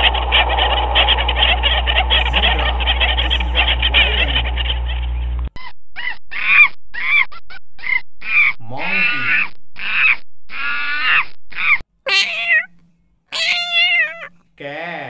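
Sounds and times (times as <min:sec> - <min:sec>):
short rising and falling calls: 0:00.0 - 0:04.8
chorus of animal calls: 0:00.0 - 0:05.3, 0:06.0 - 0:12.7, 0:13.3 - 0:14.3
steady low hum: 0:00.0 - 0:05.5.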